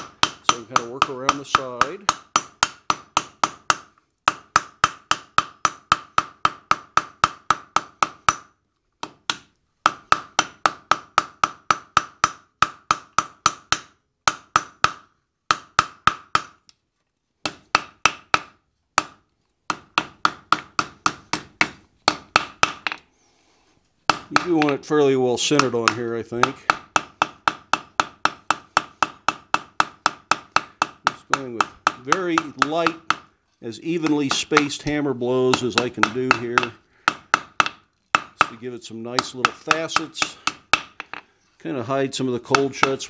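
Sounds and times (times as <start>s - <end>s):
hammer striking steel on anvil: 34.0s - 38.6s.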